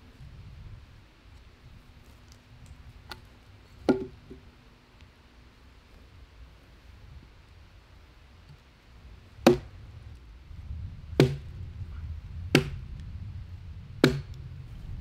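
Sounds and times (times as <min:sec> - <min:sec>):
wooden knocks splitting log: 0:03.9 - 0:04.4, 0:09.4 - 0:09.7, 0:11.2 - 0:11.4, 0:12.5 - 0:12.8, 0:14.0 - 0:14.3.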